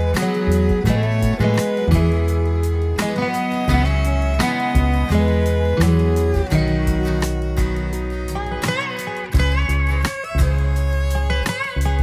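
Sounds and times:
guitar instrumental music: 0:00.0 - 0:12.0
steady bass: 0:00.0 - 0:12.0.

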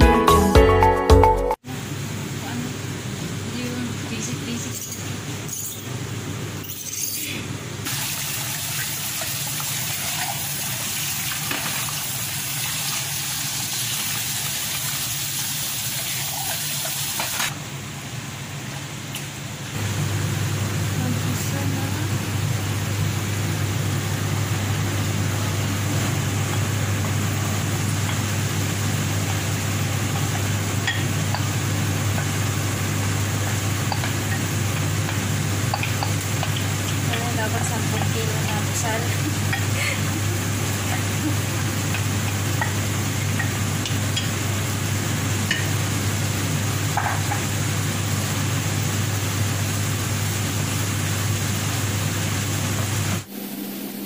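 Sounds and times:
low hum and hiss: 0:01.7 - 0:13.4, 0:17.5 - 0:54.0
tap water running onto peas: 0:07.9 - 0:17.3, 0:26.0 - 0:45.6.

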